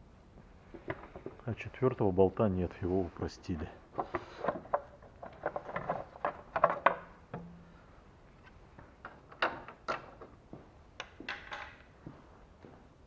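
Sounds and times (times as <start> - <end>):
plastic cover knocks and clacks: 4.0 - 7.1.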